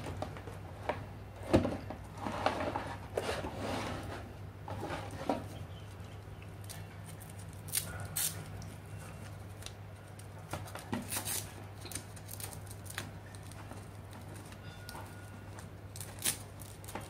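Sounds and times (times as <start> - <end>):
cables rustling and clicking: 4.7 - 17.0.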